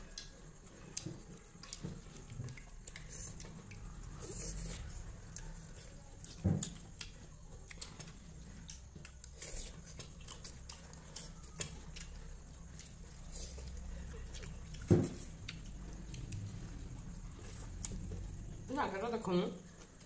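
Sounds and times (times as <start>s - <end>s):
faint chewing: 0.0s - 20.0s.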